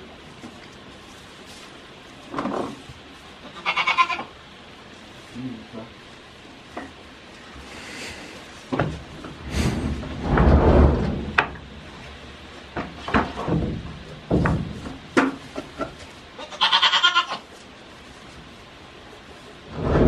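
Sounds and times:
goat bleating: 3.4 - 4.3, 16.4 - 17.5
goats scuffling: 8.4 - 20.0
hooves knocking on wooden wall: 12.8 - 16.0.

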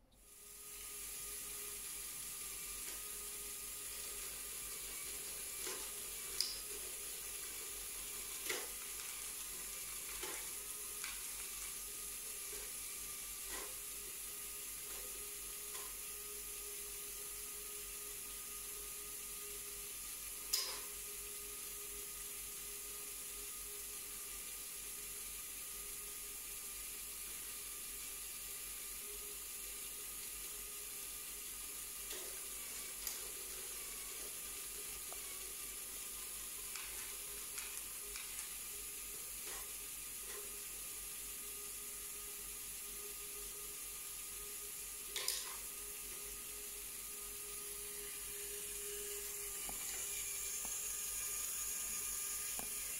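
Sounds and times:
motor whir with hiss: 0.2 - 52.9.

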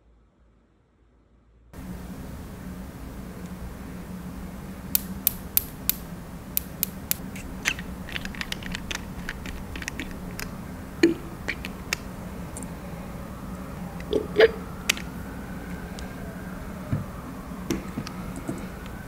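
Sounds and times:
low steady hum: 0.0 - 19.0
sharp clicks and taps: 6.6 - 12.7, 14.9 - 15.1.

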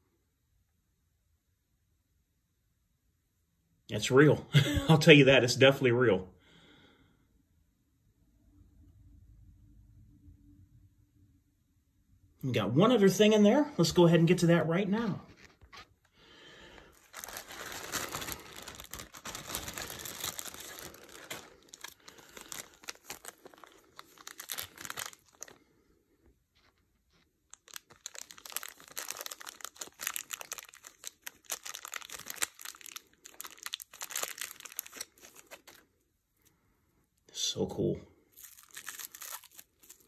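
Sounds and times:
plastic bags crinkling: 15.3 - 25.7, 26.5 - 35.9, 38.3 - 40.0.

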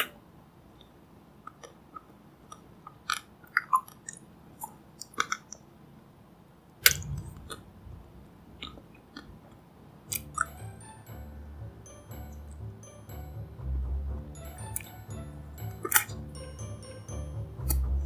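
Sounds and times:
light music: 10.1 - 18.0.

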